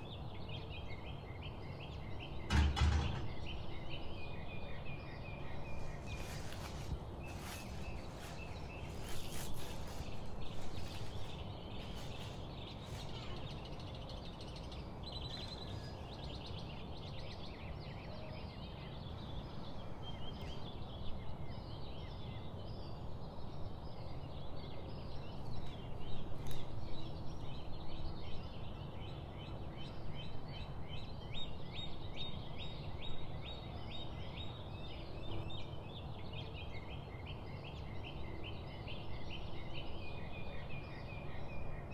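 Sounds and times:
small birds chirping: 0.0s - 41.7s
steady low background noise: 0.0s - 41.9s.

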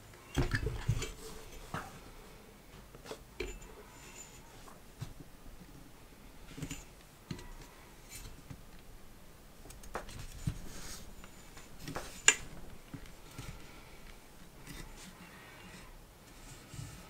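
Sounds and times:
faint rubbing: 10.3s - 17.0s.

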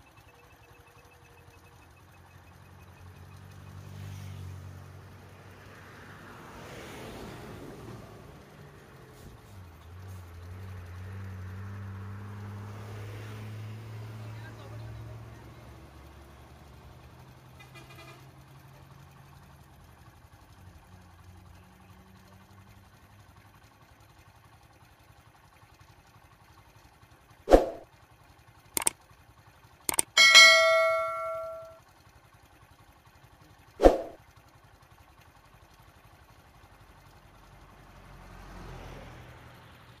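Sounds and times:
faint road traffic hum: 0.0s - 24.8s, 27.2s - 28.0s, 28.6s - 31.8s, 33.0s - 40.0s
vehicle approaching: 1.1s - 17.5s, 27.4s - 27.9s, 33.8s - 34.2s, 35.8s - 40.0s
sharp mouse clicks: 29.9s - 30.2s
notification bell ding: 29.9s - 31.8s.

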